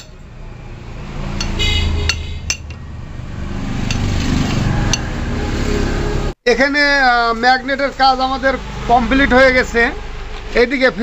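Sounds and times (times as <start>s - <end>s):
spanner clicking on metal: 0.0s - 0.2s, 1.4s - 2.8s.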